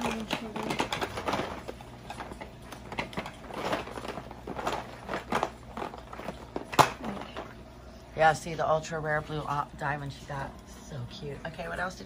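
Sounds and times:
plastic toy pieces rummaged: 0.0 - 7.5.

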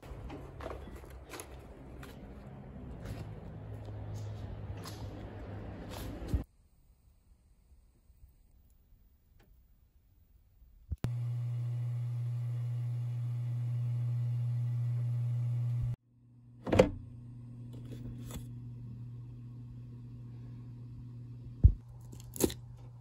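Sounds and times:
kitchen appliance humming: 11.0 - 23.0.

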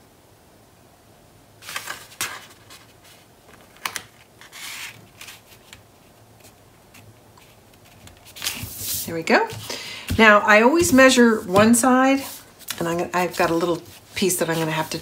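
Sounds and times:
paper rustling: 1.6 - 15.0
fingers rubbing on card: 10.5 - 15.0.

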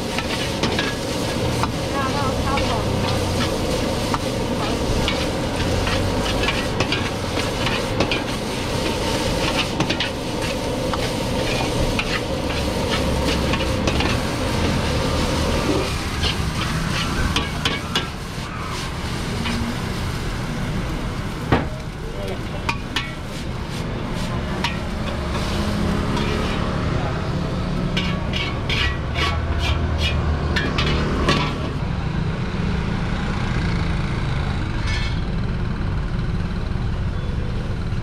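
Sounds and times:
metal ladle scraping a wok: 0.0 - 19.9, 22.6 - 26.7, 27.8 - 31.8
food sizzling: 0.0 - 31.8.

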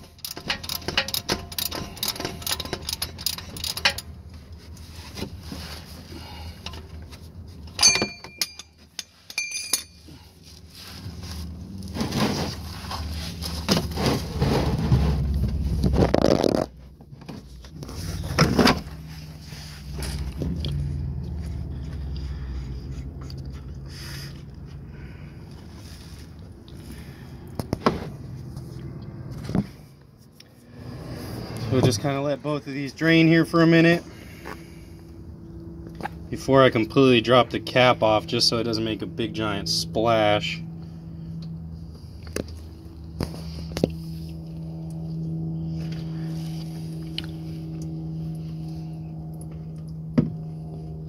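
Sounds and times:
wrench scraping and clinking on metal: 0.0 - 4.2, 7.6 - 10.2.

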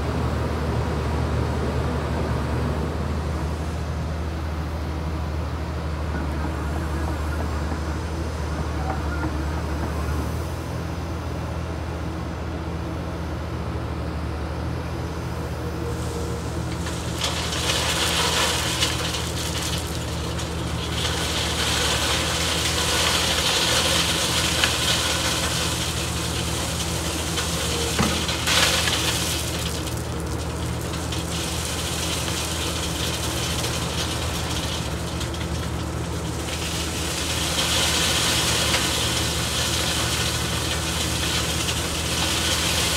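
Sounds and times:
gravel pouring into hopper: 15.8 - 42.9.

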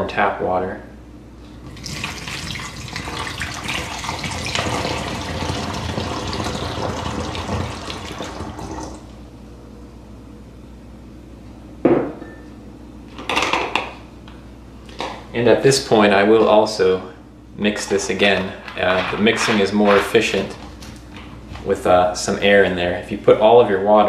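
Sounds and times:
water pouring into plastic bottle: 1.7 - 9.0.

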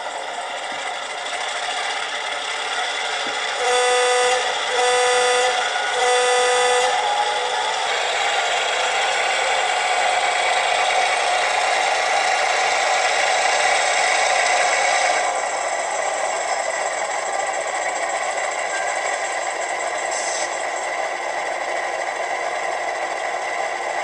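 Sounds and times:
diesel engine running: 0.0 - 24.0
model locomotive air horn: 3.4 - 9.5.

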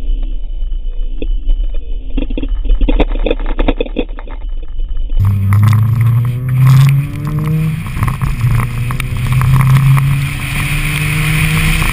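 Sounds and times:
wind noise: 0.0 - 11.9
rotary engine accelerating hard: 5.2 - 11.9.

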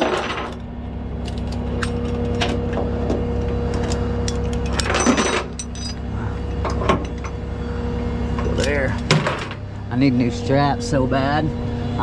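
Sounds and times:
metal chains clinking and rattling: 0.0 - 0.6, 4.2 - 7.4.

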